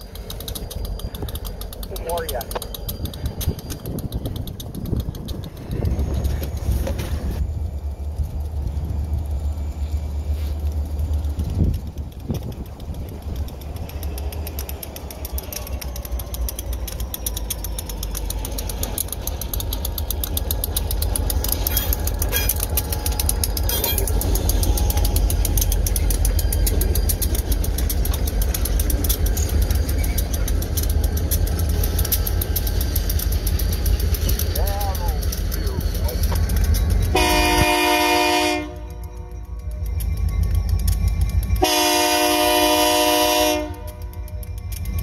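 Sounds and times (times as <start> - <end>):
metallic wheel clicks: 0.0 - 42.9, 43.6 - 45.0
diesel locomotive engines rumbling: 0.0 - 45.0.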